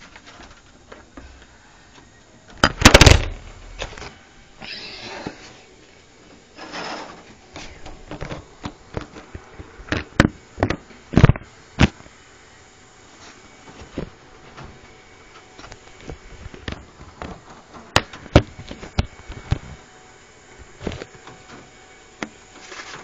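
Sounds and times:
scraping rustle: 6.5s - 7.8s, 22.5s - 23.0s.

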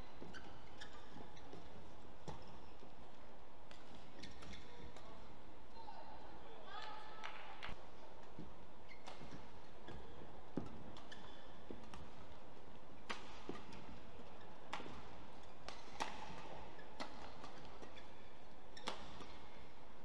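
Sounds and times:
racquets striking shuttlecock: 7.2s - 19.6s.

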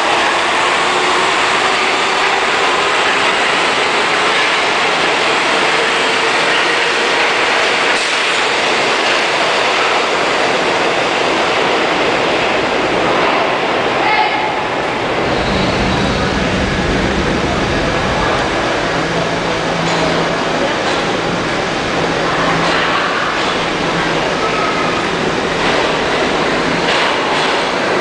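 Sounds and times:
subway train wheels rumbling: 0.0s - 28.0s
faint whining tones: 15.0s - 19.8s.

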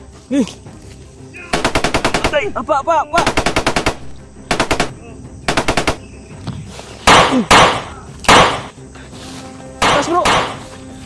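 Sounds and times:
machine-gun bursts: 1.6s - 2.4s, 3.2s - 4.9s, 5.5s - 6.0s.

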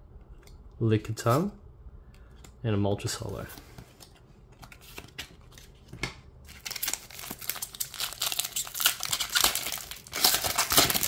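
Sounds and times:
foil pack crinkling and tearing: 6.5s - 11.0s.

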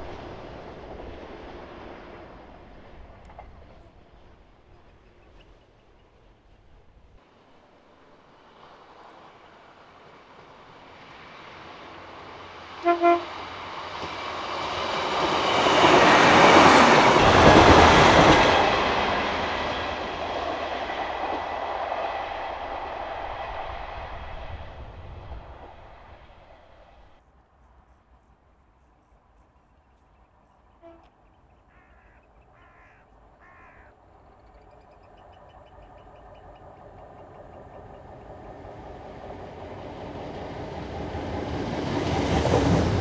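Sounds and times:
train engine and wheel noise: 0.0s - 43.0s
train horn blasts: 12.8s - 13.4s, 30.8s - 31.2s.

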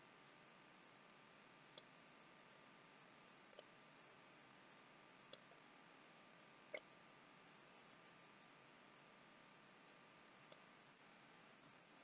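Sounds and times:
faint steady hiss: 0.0s - 12.0s
computer mouse clicks: 10.5s - 10.7s.

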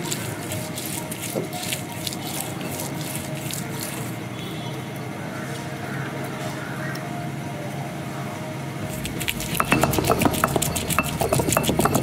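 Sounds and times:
background music: 8.8s - 12.0s.

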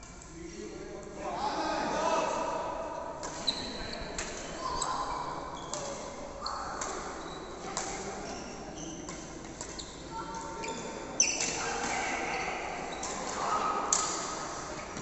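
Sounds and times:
shoes squeaking on court floor: 3.3s - 13.5s
rackets hitting shuttlecock: 13.0s - 15.0s.

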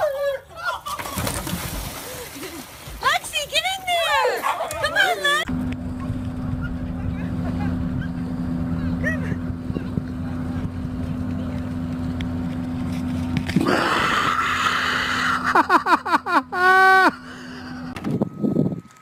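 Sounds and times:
low hum: 5.4s - 19.0s
woman laughing: 7.4s - 8.3s, 15.1s - 17.3s.

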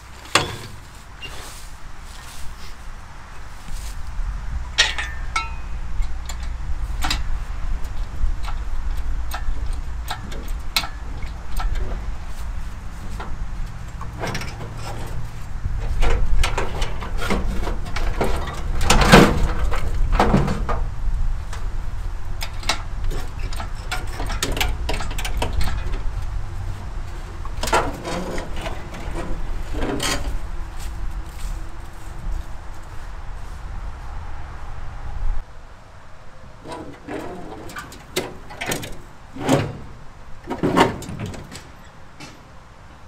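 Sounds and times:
metal creaks clicks and clunks: 0.0s - 1.6s, 4.7s - 30.8s, 36.6s - 42.6s
steady low rumble: 0.0s - 36.6s
ringing metal clanks: 0.2s - 0.9s, 4.7s - 7.3s.

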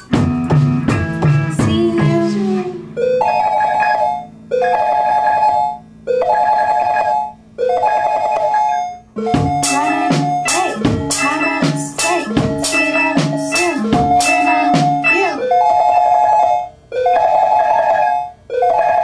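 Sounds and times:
programmed drum beat: 0.0s - 3.1s, 9.2s - 15.5s
synth melody: 0.0s - 19.0s.

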